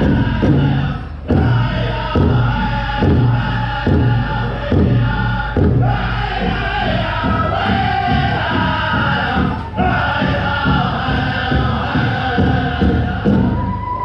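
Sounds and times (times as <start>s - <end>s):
drum struck at slow beat: 0.0s - 13.7s
people singing: 0.0s - 14.0s.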